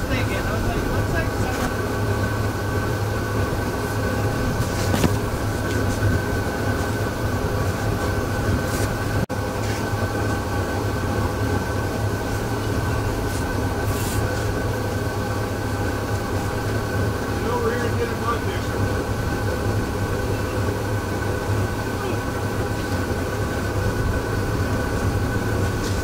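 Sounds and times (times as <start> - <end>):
wind noise: 0.0 - 9.3
electric boat drive humming: 0.0 - 26.0.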